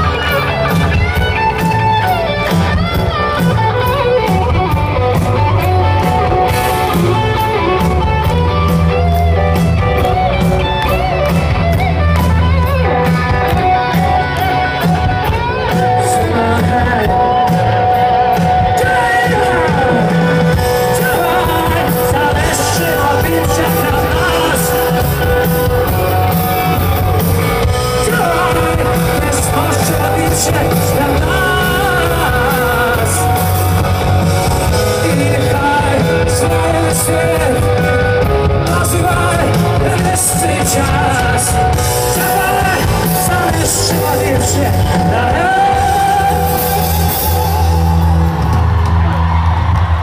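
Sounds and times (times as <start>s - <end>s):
drums: 0.0s - 50.0s
live rock band playing: 0.0s - 50.0s
person singing: 13.5s - 48.7s.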